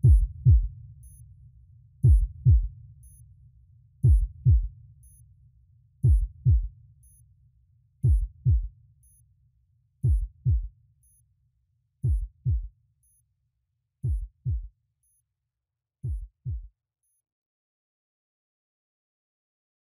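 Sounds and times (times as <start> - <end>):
electronic heartbeat thumps: 0.0 - 0.7, 2.0 - 2.7, 4.0 - 4.7, 6.0 - 6.7, 8.0 - 8.7, 10.0 - 10.7, 12.0 - 12.7, 14.0 - 14.7, 16.0 - 16.7.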